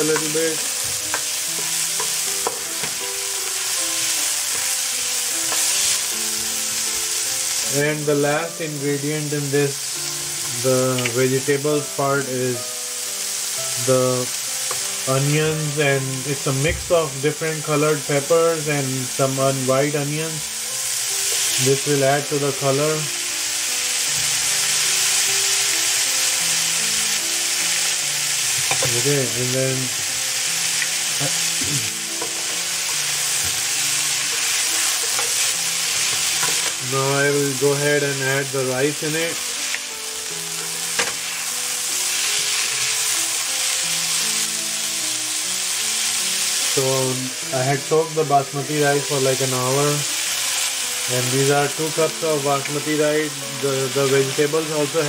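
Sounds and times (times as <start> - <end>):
soft background music: 0.0 - 55.0
vegetables sizzling in frying pan: 0.0 - 55.0.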